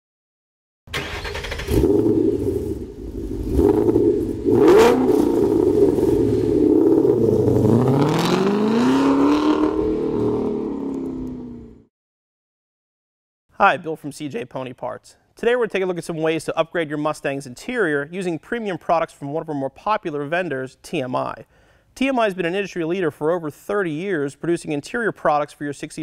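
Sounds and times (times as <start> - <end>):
car engine revving: 1.0 - 11.8.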